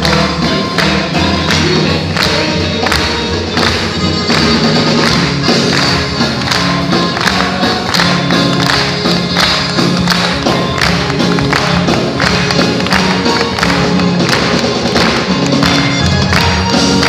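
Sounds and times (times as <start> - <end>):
bass guitar: 0.0 - 17.0
live rock band playing: 0.0 - 17.0
steady drum beat: 0.0 - 17.0.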